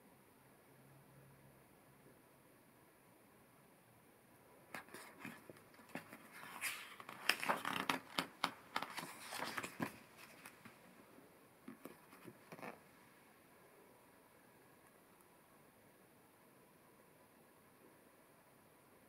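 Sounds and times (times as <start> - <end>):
book pages rustling: 4.7 - 10.8, 11.7 - 12.8.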